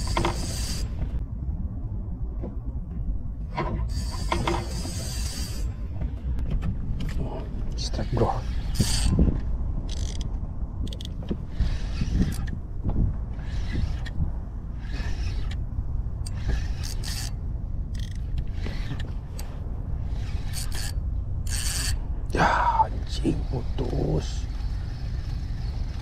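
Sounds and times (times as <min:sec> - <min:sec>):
fishing reel whirring and scraping: 0:00.0 - 0:01.2, 0:03.8 - 0:05.8, 0:07.8 - 0:12.6, 0:13.3 - 0:22.0, 0:22.6 - 0:26.0
low rumble: 0:00.0 - 0:26.0.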